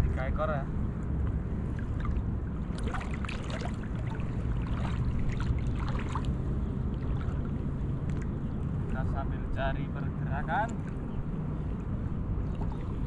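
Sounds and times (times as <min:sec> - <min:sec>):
water sloshing and splashing: 0:00.8 - 0:13.0.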